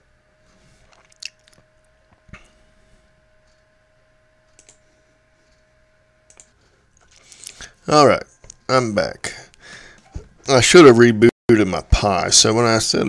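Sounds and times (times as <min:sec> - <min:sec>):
computer mouse clicks: 0:04.5 - 0:04.8, 0:06.3 - 0:07.6.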